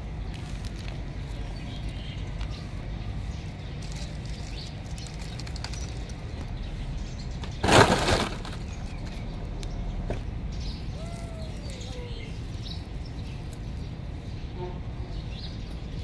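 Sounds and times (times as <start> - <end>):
dry palm fronds crackling: 3.7 - 6.5, 7.4 - 9.2.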